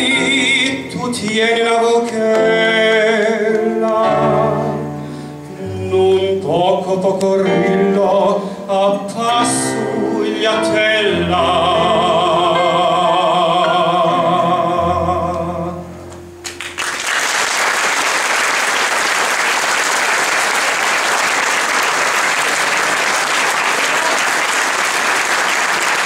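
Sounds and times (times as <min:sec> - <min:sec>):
man singing long note: 0:05.6 - 0:15.9
applause: 0:16.4 - 0:26.0.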